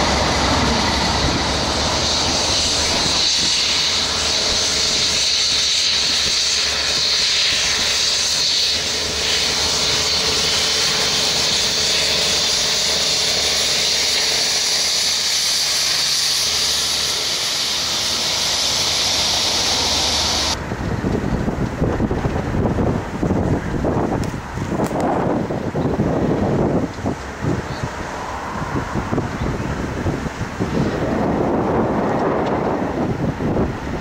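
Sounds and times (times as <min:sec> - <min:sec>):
strong even hiss: 0:00.0 - 0:20.6
diesel locomotive engine: 0:00.0 - 0:34.0.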